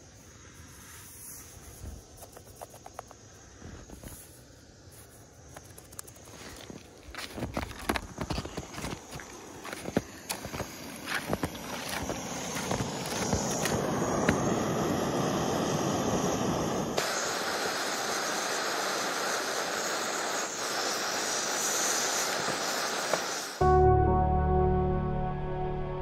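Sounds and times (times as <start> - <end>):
gas stove hissing: 0.0 - 23.6
pot clicking and crunching: 5.7 - 13.8.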